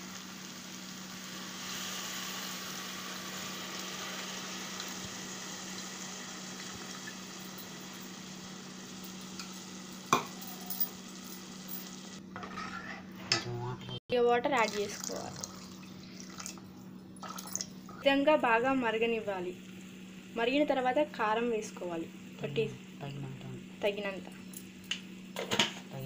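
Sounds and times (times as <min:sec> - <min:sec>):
food sizzling in a pot: 0:00.0 - 0:13.0.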